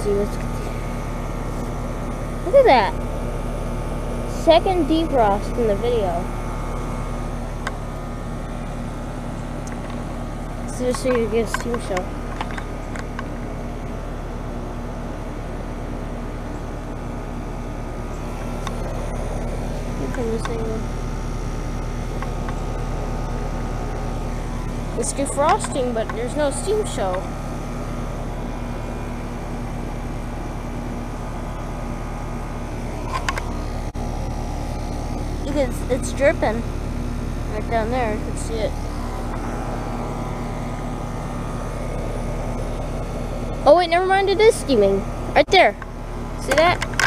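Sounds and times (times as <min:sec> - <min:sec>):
heat pump units humming: 0:00.0 - 0:47.0.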